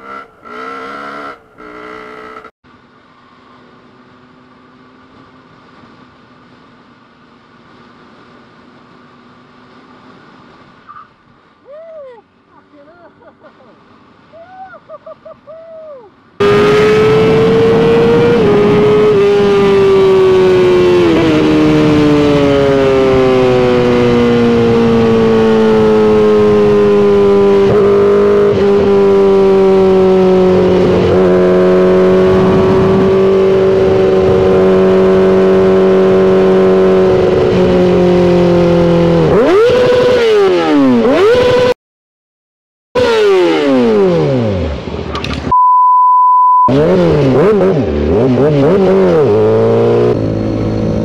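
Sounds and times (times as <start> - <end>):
motorcycle engine running hard: 16.4 - 41.7, 46.7 - 51.0.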